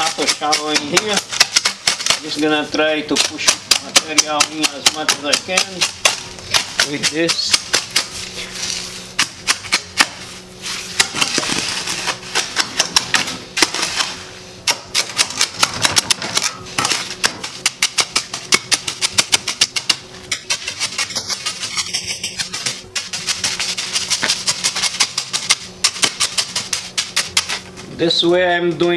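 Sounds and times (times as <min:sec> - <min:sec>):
shovel tapping into wet concrete: 0:00.0 - 0:02.3, 0:03.1 - 0:08.1, 0:12.4 - 0:14.1, 0:14.7 - 0:23.6
shovel scraping concrete: 0:00.0 - 0:27.7.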